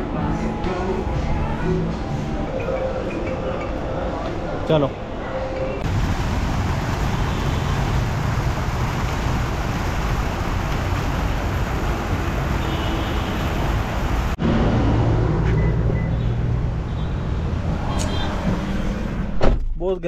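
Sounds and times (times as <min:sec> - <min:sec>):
fountain water splashing: 0:05.9 - 0:14.4.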